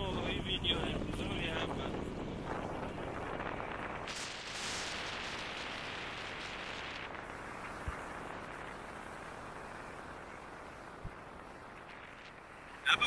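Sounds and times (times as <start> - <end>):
road and wind noise: 0.0 - 13.0
loud hiss: 4.0 - 7.2.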